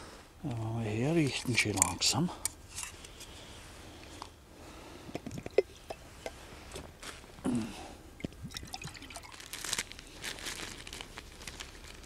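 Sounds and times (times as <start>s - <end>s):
water pouring into metal container: 8.5s - 9.4s.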